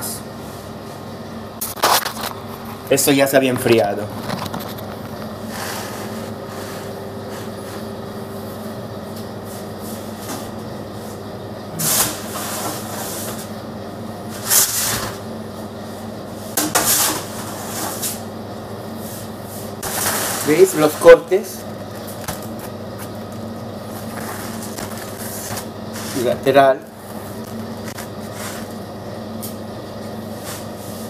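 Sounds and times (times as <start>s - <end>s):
steady low hum: 0.0s - 31.0s
bread loaves scraping and clattering: 3.6s - 7.9s, 11.8s - 13.5s, 14.3s - 15.2s, 16.6s - 18.3s, 19.1s - 22.7s, 23.9s - 28.8s.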